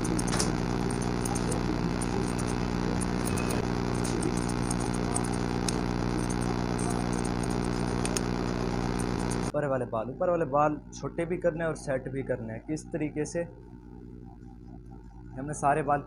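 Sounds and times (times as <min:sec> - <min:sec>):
scissors snipping hair: 0:00.0 - 0:08.4
machine hum: 0:00.0 - 0:09.5.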